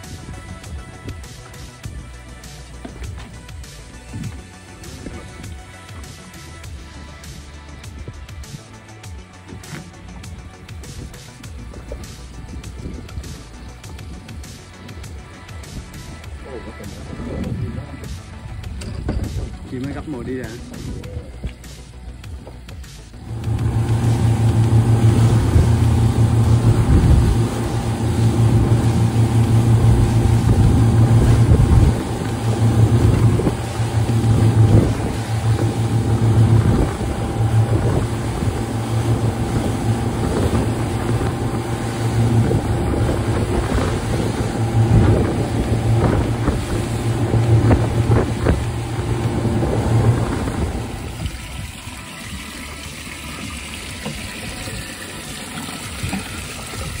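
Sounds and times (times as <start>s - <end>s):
outboard motors droning: 0.0s - 57.0s
wind and spray noise: 0.0s - 57.0s
water pouring into a tank: 48.0s - 57.0s.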